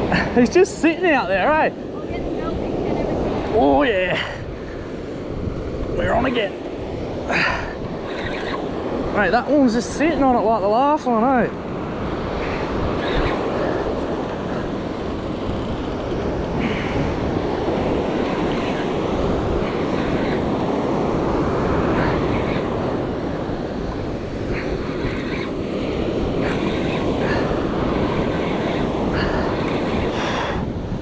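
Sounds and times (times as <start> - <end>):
wind buffeting microphone: 0.0 - 31.0.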